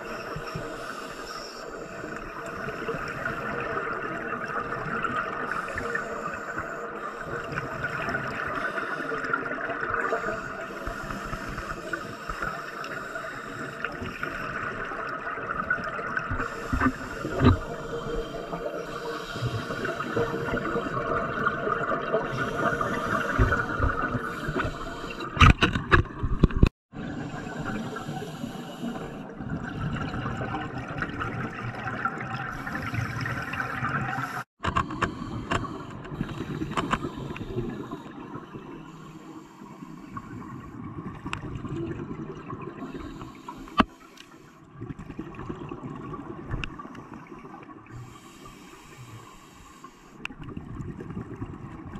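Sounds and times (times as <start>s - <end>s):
underwater hiss and gurgling: 0.0s - 25.6s, 26.3s - 51.9s.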